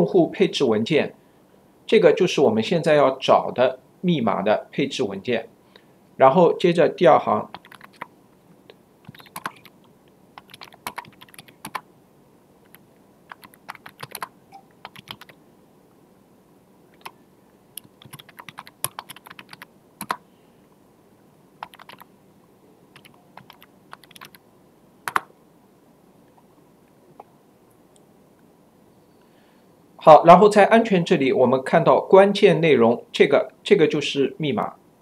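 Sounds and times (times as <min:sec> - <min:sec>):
keyboard typing clicks: 0:07.5 - 0:08.1, 0:09.0 - 0:09.8, 0:10.4 - 0:11.8, 0:12.6 - 0:15.4, 0:17.0 - 0:17.2, 0:17.8 - 0:20.2, 0:21.6 - 0:22.1, 0:23.0 - 0:24.4, 0:25.1 - 0:25.3.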